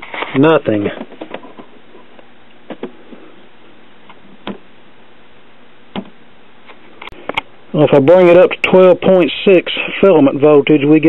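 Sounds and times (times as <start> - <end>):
steady low hiss: 0.0 - 11.0.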